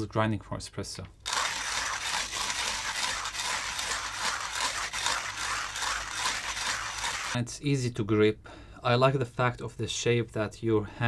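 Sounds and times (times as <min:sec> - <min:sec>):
manual coffee grinder grinding: 0:01.3 - 0:07.4.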